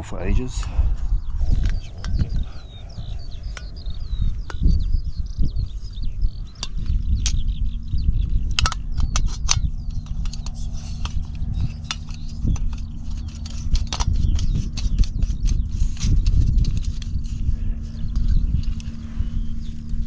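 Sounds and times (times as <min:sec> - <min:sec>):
sharp metal clicks and clinks: 0:08.5 - 0:15.6.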